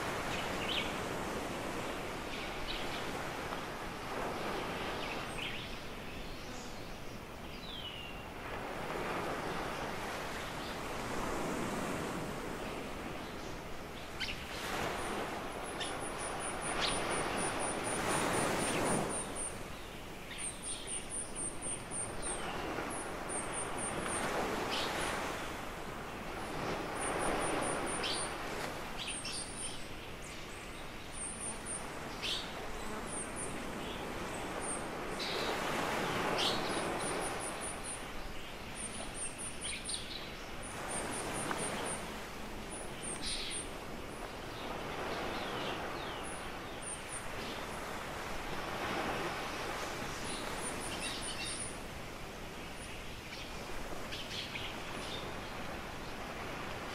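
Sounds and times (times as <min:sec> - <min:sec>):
small waves breaking on beach: 0:00.0 - 0:56.9.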